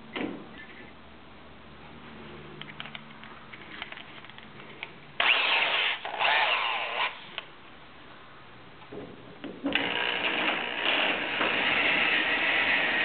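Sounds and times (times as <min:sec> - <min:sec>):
electric drill boring into metal: 0:05.2 - 0:07.2, 0:09.7 - 0:13.0.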